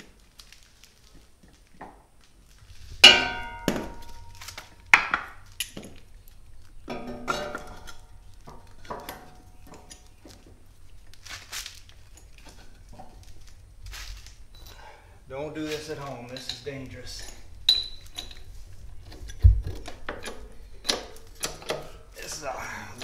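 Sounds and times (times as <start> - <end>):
ringing metal clangs: 3.0 - 5.1, 6.9 - 8.2, 16.4 - 18.4
metal knocks and clinks: 3.0 - 6.0, 6.8 - 10.2, 16.3 - 18.5.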